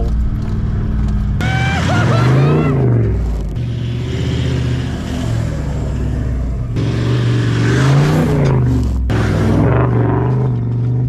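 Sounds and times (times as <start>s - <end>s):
engine revving hard: 1.4s - 11.0s.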